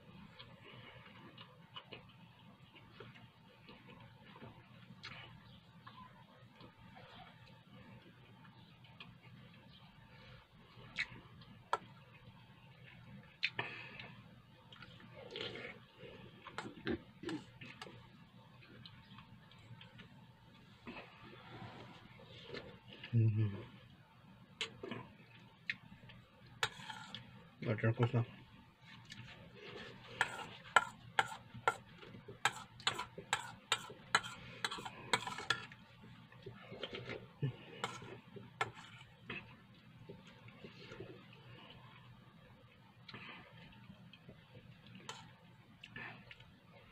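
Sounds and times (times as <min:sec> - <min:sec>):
chewing: 0:12.8 - 0:18.0
metal spoon scraping steel bowl: 0:26.6 - 0:27.2, 0:30.2 - 0:31.8, 0:32.4 - 0:35.8, 0:37.8 - 0:39.0.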